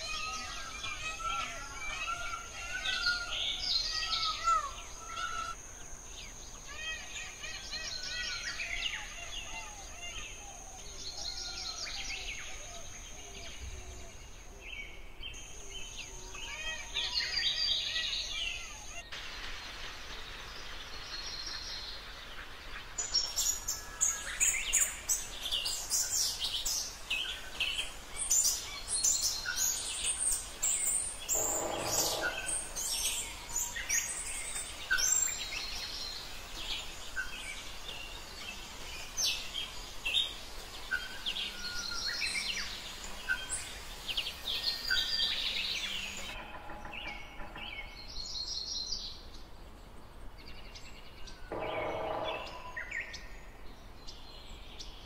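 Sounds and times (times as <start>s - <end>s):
birds chirping and singing: 0.0s - 19.4s, 20.6s - 55.0s
steady high-pitched tone: 31.3s - 33.2s, 51.5s - 52.9s.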